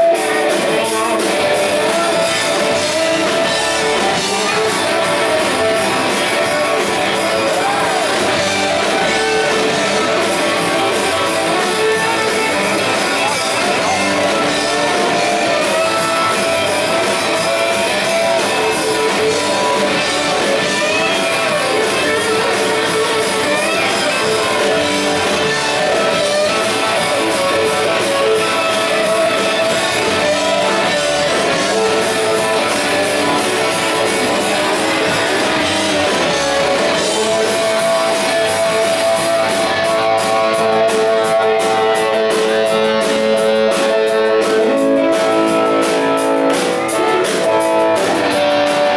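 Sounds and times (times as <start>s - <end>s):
electric guitars: 0.0s - 48.9s
rock band playing live: 0.0s - 48.9s.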